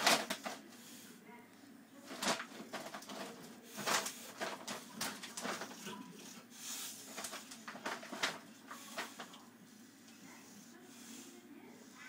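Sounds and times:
dog food bag crinkling: 0:02.0 - 0:06.0, 0:07.1 - 0:09.4
kibble crunching: 0:02.0 - 0:09.5.

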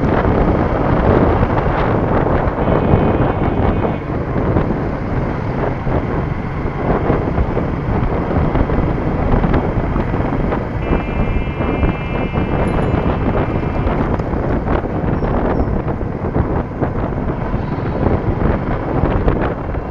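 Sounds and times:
motorcycle engine and road noise: 0:00.0 - 0:19.9
wind buffeting microphone: 0:00.0 - 0:19.9
vehicle horn held: 0:02.6 - 0:04.2, 0:10.8 - 0:14.6.

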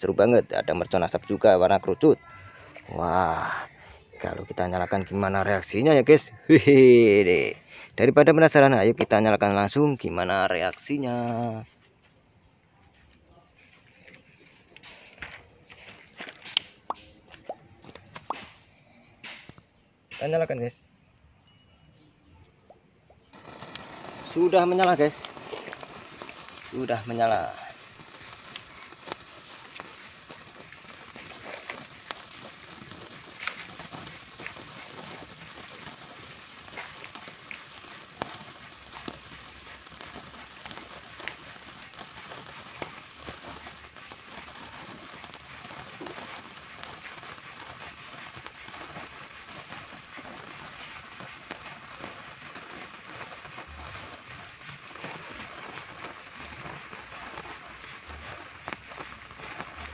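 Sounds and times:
small crackles and ticks: 0:09.7 - 0:18.6, 0:23.3 - 0:59.9
fuse fizzing hiss: 0:23.3 - 0:59.9.

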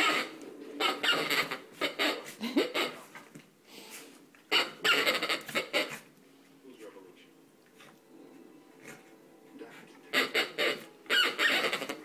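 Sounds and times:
squeaky dog toy: 0:00.0 - 0:03.1, 0:04.5 - 0:06.1, 0:10.1 - 0:12.0.

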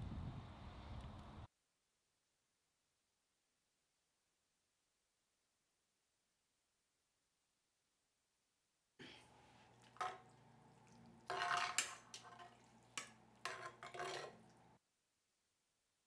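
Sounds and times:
ladle scraping and clinking in pot: 0:09.7 - 0:14.8.

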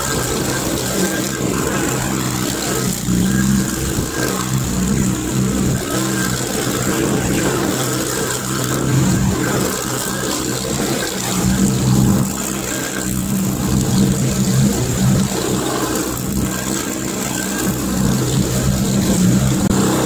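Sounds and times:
skid steer engine under load: 0:00.0 - 0:20.0.

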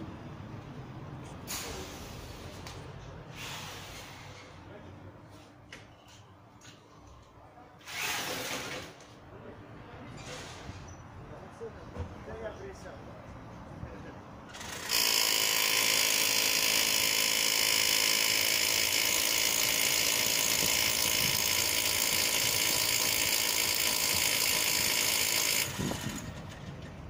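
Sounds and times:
electric drill boring into masonry: 0:07.8 - 0:08.9, 0:14.5 - 0:26.6.

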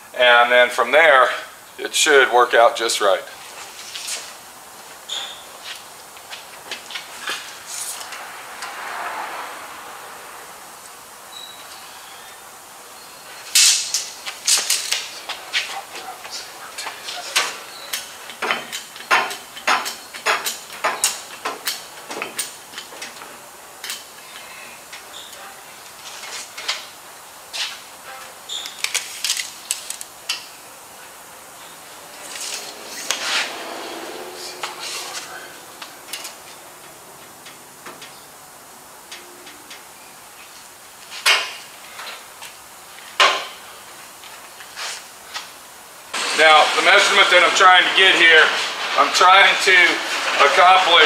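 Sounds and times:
tools and metal parts clicking: 0:28.6 - 0:30.5.

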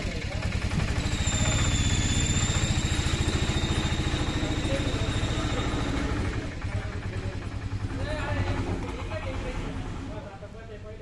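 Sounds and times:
milking machine vacuum pump pulsing: 0:00.5 - 0:06.7.

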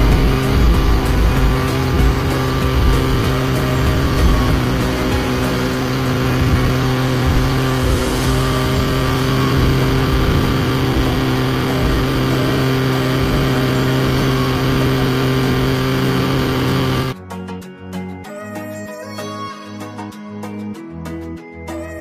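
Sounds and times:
small generator droning: 0:00.0 - 0:17.2.

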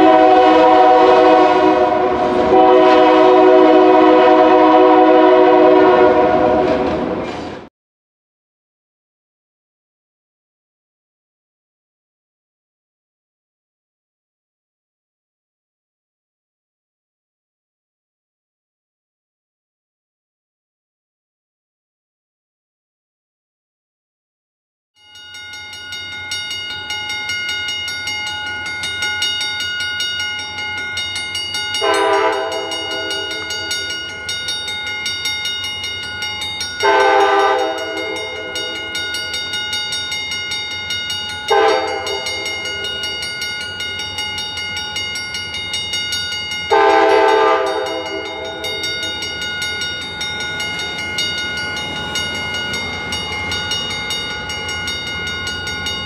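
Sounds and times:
train air horn blasts: 0:00.0 - 0:07.1, 0:31.8 - 0:33.5, 0:36.8 - 0:38.8, 0:41.5 - 0:42.8, 0:46.7 - 0:48.8.

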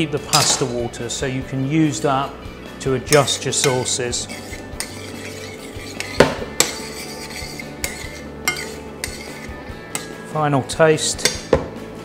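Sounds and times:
spoon clinking against pan: 0:03.1 - 0:07.1, 0:07.8 - 0:10.2
spoon stirring pasta in pan: 0:03.1 - 0:10.2.

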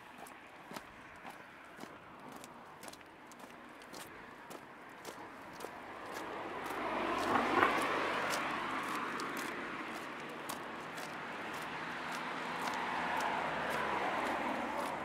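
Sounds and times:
cars passing by: 0:00.0 - 0:15.0
footsteps tapping: 0:06.1 - 0:15.0.

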